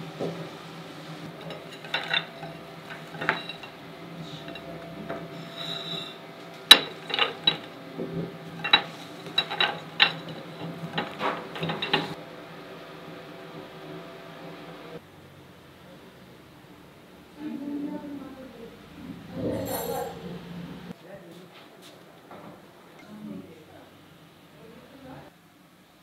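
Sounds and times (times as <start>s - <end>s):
steady hum: 0.0s - 19.4s
dishes and utensils clattering: 1.2s - 12.2s, 19.3s - 20.3s.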